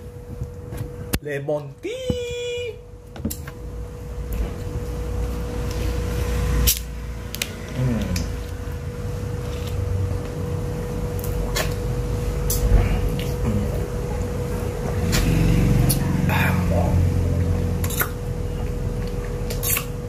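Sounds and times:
steady mid-pitched hum: 0:00.0 - 0:20.0.

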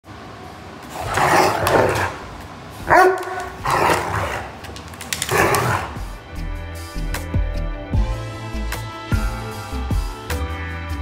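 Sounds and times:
dogs growling and snarling: 0:00.8 - 0:06.2
dog barking: 0:02.9 - 0:04.5.

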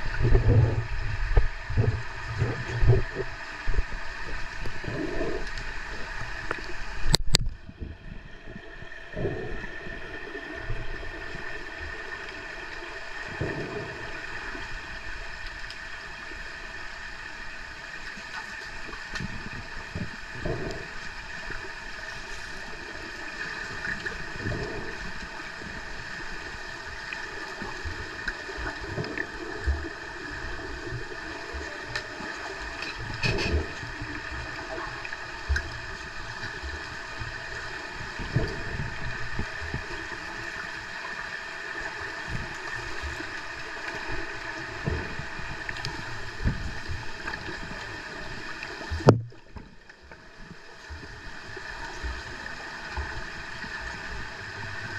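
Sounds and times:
dull underwater knocks and clicks: 0:00.0 - 0:07.9, 0:27.6 - 0:40.0, 0:42.2 - 0:51.2
underwater hiss with steady tones: 0:00.0 - 0:54.9.

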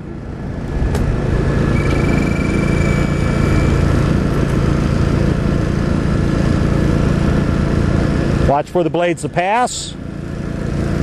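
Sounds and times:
small gasoline engine running: 0:00.1 - 0:11.0
thin high whine: 0:01.3 - 0:05.4.

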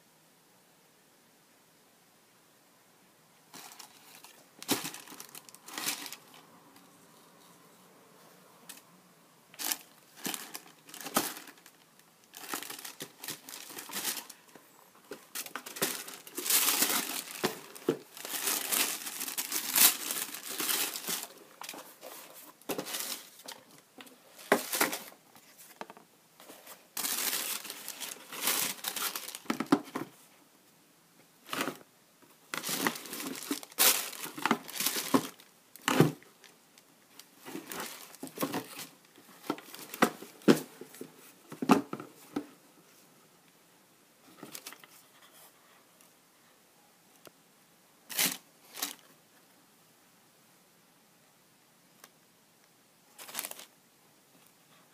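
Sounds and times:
tissue paper crinkling: 0:03.5 - 0:06.4, 0:09.6 - 0:23.5, 0:26.4 - 0:29.5, 0:32.5 - 0:35.5, 0:37.4 - 0:38.9, 0:53.2 - 0:53.7.

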